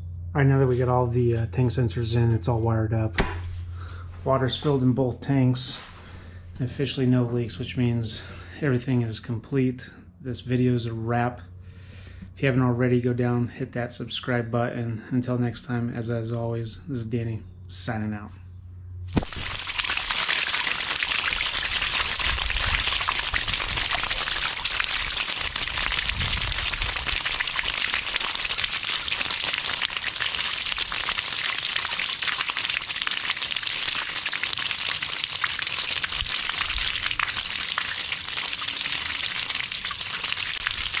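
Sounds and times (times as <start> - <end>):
water splashing onto concrete: 19.1 - 41.0.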